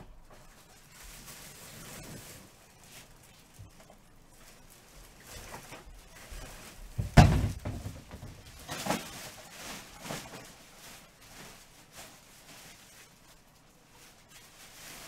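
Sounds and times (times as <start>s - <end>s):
heavy thunk: 7.0s - 8.2s.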